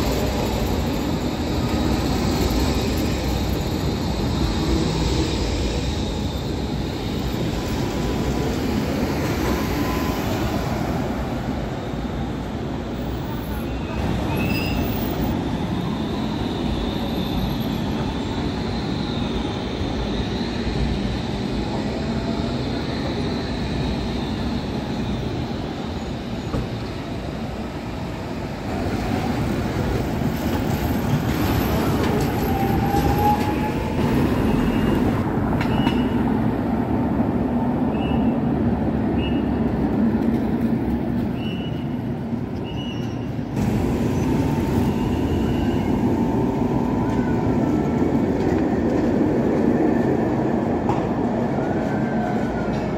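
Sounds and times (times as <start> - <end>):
trams rumbling on rails: 0.0 - 52.9.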